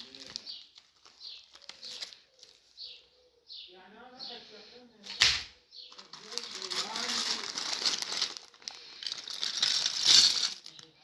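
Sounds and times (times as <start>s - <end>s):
plastic bags crinkling: 0.0s - 2.8s, 5.9s - 11.0s
small bird chirping: 0.0s - 4.4s.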